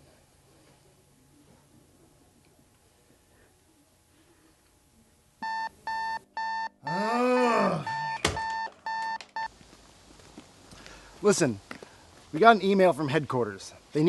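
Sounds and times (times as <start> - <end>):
alarm clock beeping: 5.4 - 7.0, 7.9 - 9.5.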